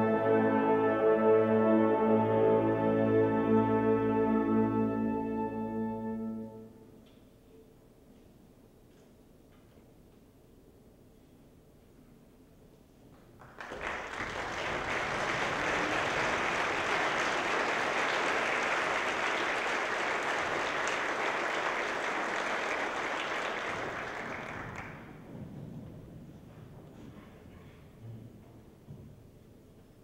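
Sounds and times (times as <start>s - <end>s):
audience applauding: 13.4s - 25.3s.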